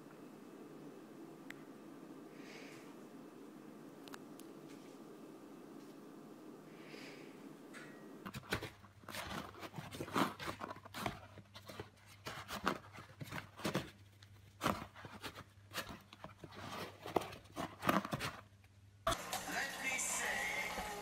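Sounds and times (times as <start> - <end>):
cat scratching cardboard box: 8.3 - 18.5.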